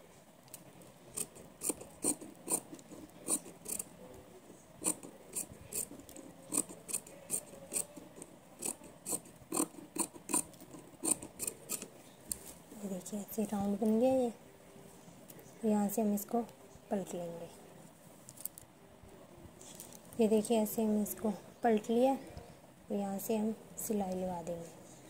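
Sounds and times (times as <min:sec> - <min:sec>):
shears snipping cloth: 0:10.3 - 0:12.4.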